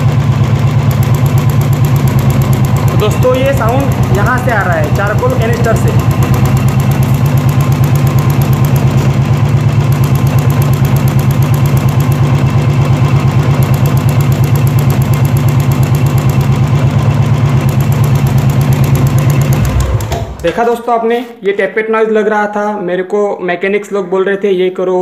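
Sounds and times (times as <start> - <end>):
motorcycle engine idling: 0.0 - 20.6
rapid ticking: 0.8 - 20.6.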